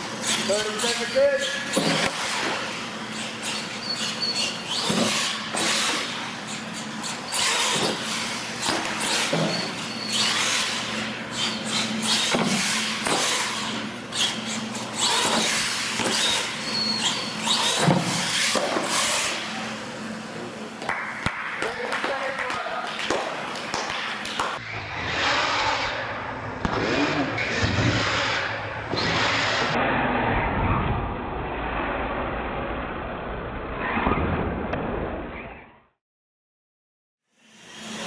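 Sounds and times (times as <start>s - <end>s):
toy truck motor whine: 3.2s - 19.5s.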